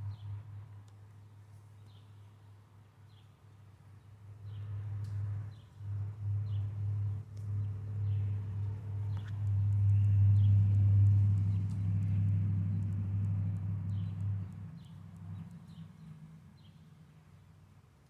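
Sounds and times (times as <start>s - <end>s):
motorcycle engine droning: 5.5s - 16.8s.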